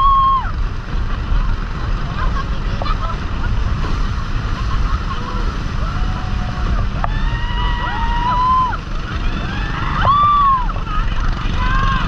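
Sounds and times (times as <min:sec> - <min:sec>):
wind and spray rushing: 0:00.0 - 0:10.0
riders shouting: 0:05.4 - 0:12.0.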